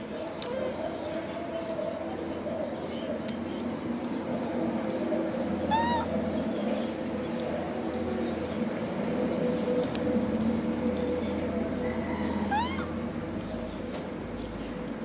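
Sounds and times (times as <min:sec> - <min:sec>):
steady low hum: 0:00.0 - 0:15.0
high animal call: 0:05.7 - 0:06.2, 0:11.8 - 0:13.2.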